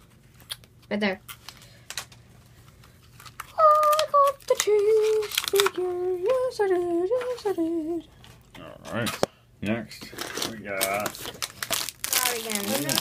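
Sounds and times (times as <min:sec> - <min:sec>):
child humming a tune: 0:03.5 - 0:08.1.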